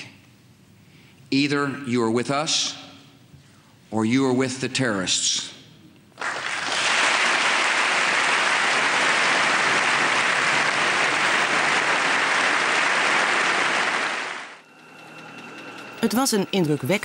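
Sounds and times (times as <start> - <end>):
large audience applauding: 6.2 - 14.6.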